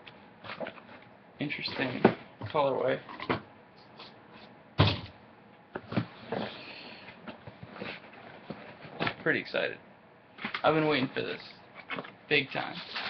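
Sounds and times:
heavy thump: 4.8 - 5.2.

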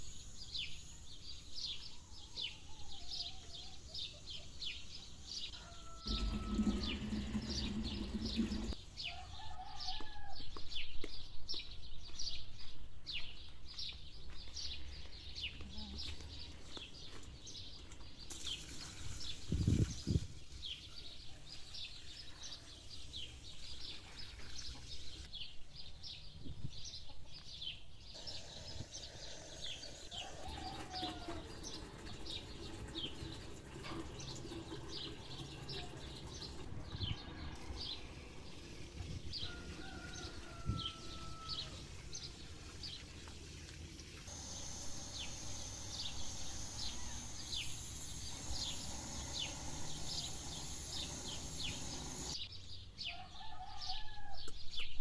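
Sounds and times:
small birds chirping: 0.0 - 55.0
steady high hiss: 41.3 - 52.4.

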